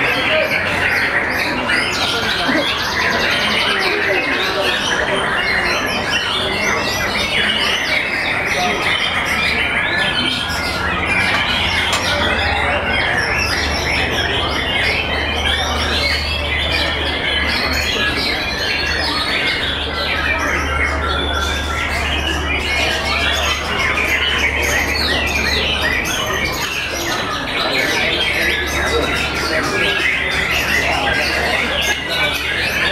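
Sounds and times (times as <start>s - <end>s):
birds whistling and trilling: 0.0s - 32.9s.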